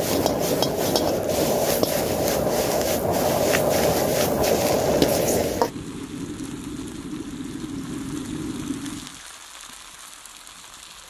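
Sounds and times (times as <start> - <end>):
metal ladle scraping wok: 0.0 - 5.7
gas wok burner roaring: 0.0 - 6.2.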